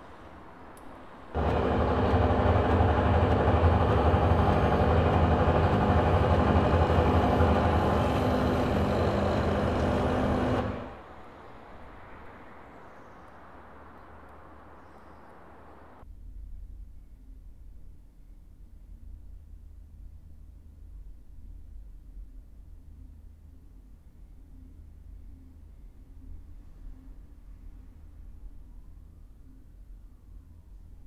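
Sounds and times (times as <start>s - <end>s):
low mechanical rumble: 0.0s - 16.0s.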